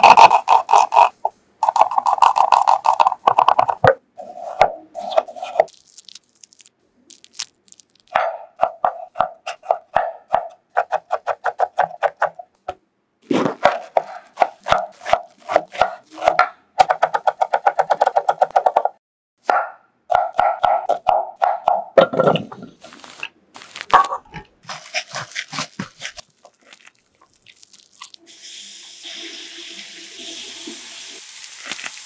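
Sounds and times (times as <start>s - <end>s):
knife chopping on wooden board: 8.2s - 18.9s, 19.5s - 22.3s.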